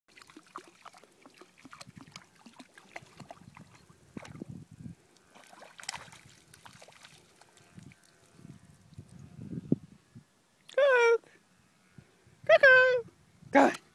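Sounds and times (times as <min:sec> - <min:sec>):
footsteps splashing in shallow water: 0:00.1 - 0:04.5, 0:05.2 - 0:08.3.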